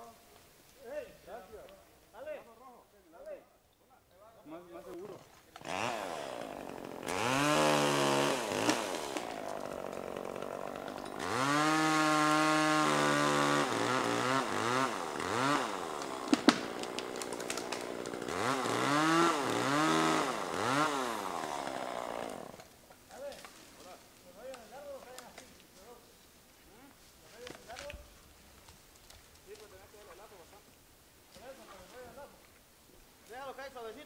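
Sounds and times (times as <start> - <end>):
chainsaw engine revving: 5.6 - 22.7.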